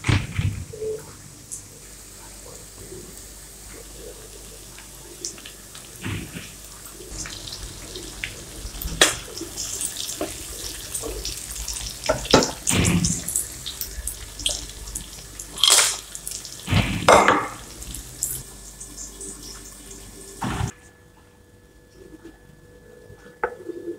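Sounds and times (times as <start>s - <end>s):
onions sizzling in hot oil: 1.2s - 20.7s.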